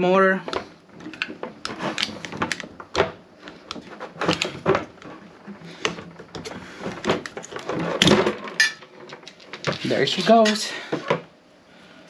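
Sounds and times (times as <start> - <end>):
screwdriver clicking and scraping: 1.1 - 2.6.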